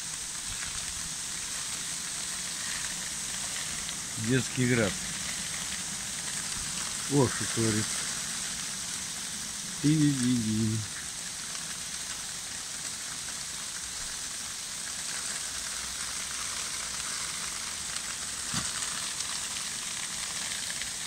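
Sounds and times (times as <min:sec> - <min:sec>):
hail falling on cars and roof: 0:00.0 - 0:21.0
sharp hail tap: 0:18.1 - 0:20.2.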